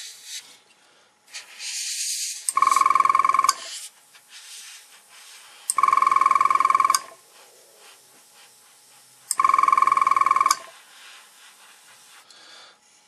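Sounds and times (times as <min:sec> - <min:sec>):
electronic telephone ringer trilling: 0:02.5 - 0:03.7, 0:05.8 - 0:07.2, 0:09.4 - 0:10.7.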